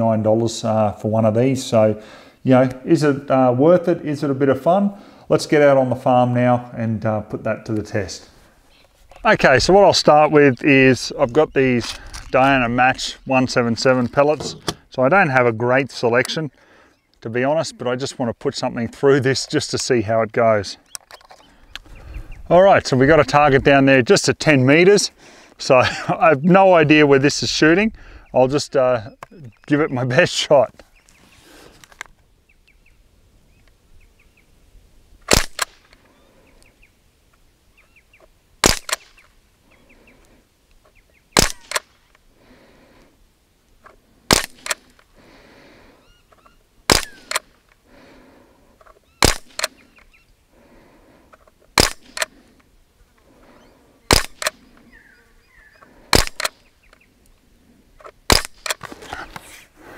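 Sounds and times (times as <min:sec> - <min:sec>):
air rifle shots: 0:35.2 - 0:35.9, 0:38.6 - 0:39.2, 0:41.4 - 0:42.0, 0:44.3 - 0:45.0, 0:46.9 - 0:47.6, 0:49.2 - 0:49.8, 0:51.8 - 0:52.4, 0:54.1 - 0:54.8, 0:56.1 - 0:56.7, 0:58.3 - 0:58.8.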